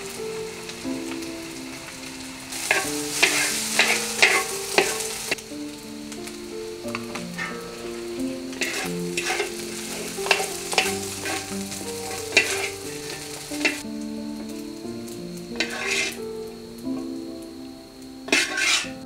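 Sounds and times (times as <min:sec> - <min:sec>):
rice sizzling in wok: 0:00.0 - 0:19.0
soft background music: 0:00.0 - 0:19.0
wooden spatula scraping wok: 0:02.5 - 0:05.4, 0:06.2 - 0:13.9, 0:15.6 - 0:16.2, 0:18.3 - 0:19.0.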